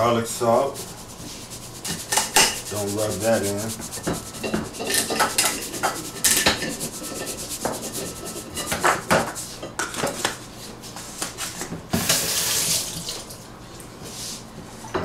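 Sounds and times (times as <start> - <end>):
spice shakers shaking: 0.8 - 9.0
shakers knocking on countertop: 1.8 - 9.4.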